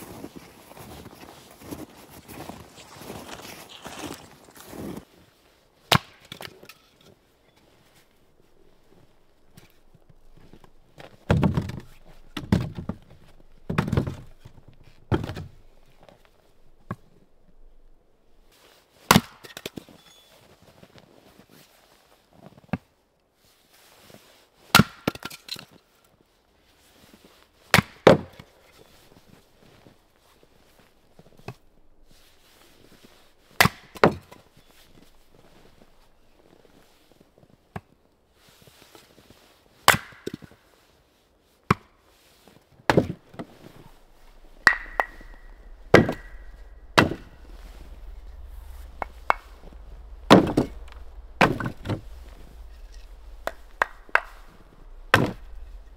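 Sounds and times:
axe splitting logs: 5.9s - 6.8s, 24.7s - 25.4s, 33.5s - 34.4s, 39.9s - 40.4s, 44.6s - 47.3s.

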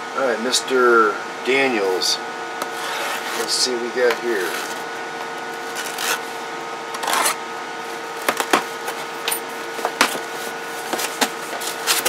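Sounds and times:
steady electrical hum: 0.0s - 12.0s
cardboard box scraping rasp: 2.6s - 3.6s, 4.3s - 4.8s, 5.6s - 6.3s, 7.0s - 7.4s.

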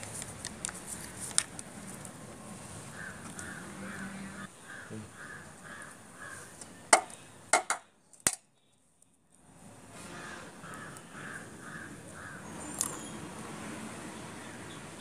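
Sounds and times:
crow cawing: 2.9s - 6.5s, 10.1s - 12.5s.

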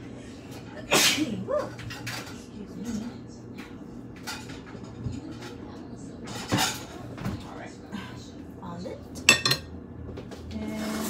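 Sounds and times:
kitchen things clacking: 1.6s - 7.5s, 9.2s - 9.8s.

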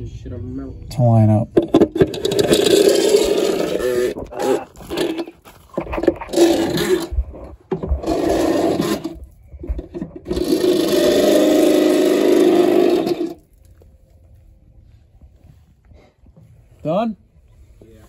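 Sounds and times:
electric drill running: 8.0s - 9.2s, 10.3s - 13.4s.

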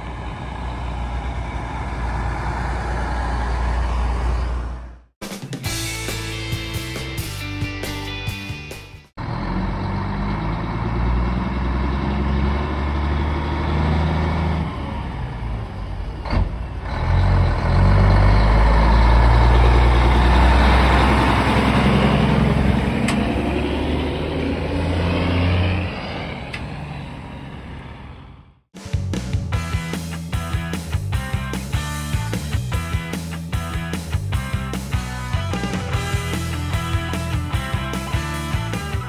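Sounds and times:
diesel trucks driving past: 0.0s - 5.1s, 9.2s - 28.6s.

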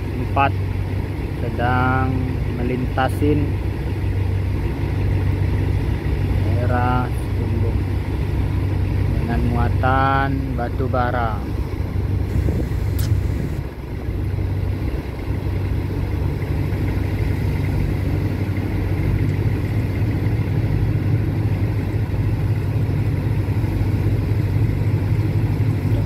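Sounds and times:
boat engine droning: 0.0s - 26.0s
faint click: 12.9s - 13.2s.

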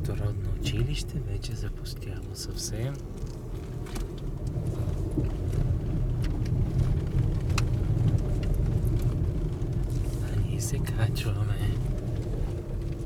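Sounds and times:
car engine and road noise: 0.0s - 13.0s
small clicks and rattles: 2.8s - 13.0s.

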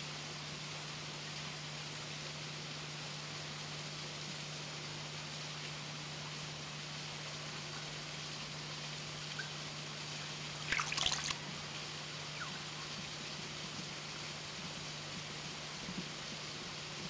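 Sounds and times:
steady hiss: 0.0s - 17.0s
water splashing and dripping: 10.6s - 11.5s.

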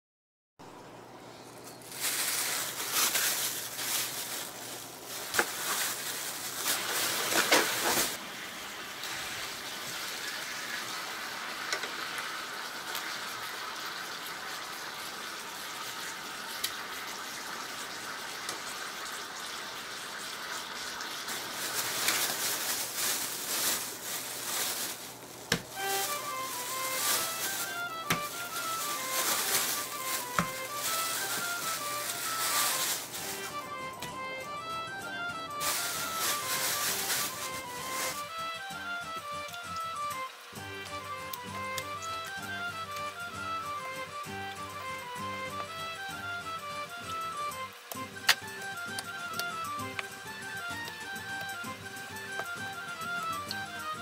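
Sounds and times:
plastic bag rustling: 1.4s - 8.2s, 21.0s - 34.0s, 35.4s - 38.3s
chicken sizzling on a griddle: 1.9s - 33.5s, 35.6s - 38.3s
crackling and clicks: 39.5s - 43.2s, 47.8s - 54.0s.

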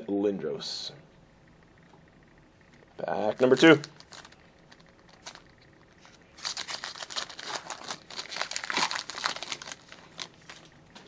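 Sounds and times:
wrapper tearing and crackling: 3.4s - 10.6s.

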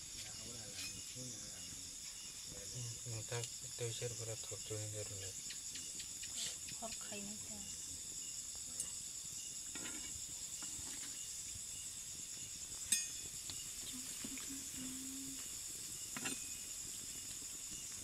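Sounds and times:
crickets chirring: 0.0s - 18.0s
dough deep-frying in oil: 8.1s - 18.0s.

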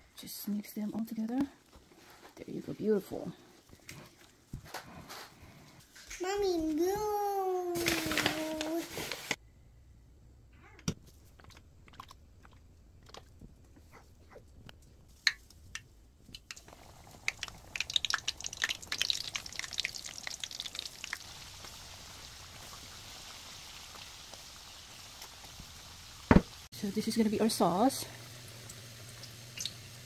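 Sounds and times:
chicken sizzling in hot oil: 16.5s - 30.0s.

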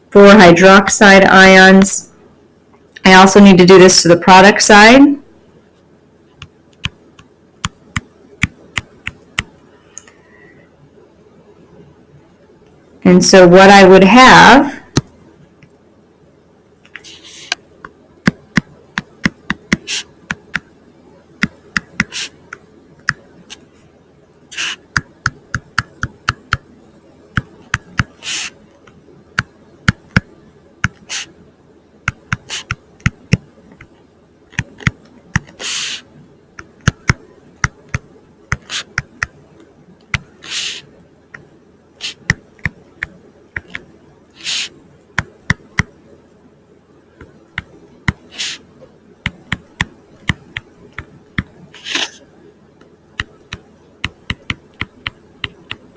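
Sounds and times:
stylus scraping on screen: 16.9s - 17.6s, 18.3s - 20.6s, 21.4s - 22.4s, 24.5s - 26.6s, 27.4s - 28.6s, 30.9s - 31.4s, 32.1s - 36.1s, 36.9s - 39.3s, 40.2s - 40.9s, 42.0s - 45.9s, 47.6s - 48.7s, 49.3s - 52.3s
stylus clicking on tablet screen: 21.4s - 22.3s, 24.5s - 26.6s, 32.1s - 33.9s, 41.4s - 43.8s, 49.3s - 52.2s, 53.2s - 55.9s.

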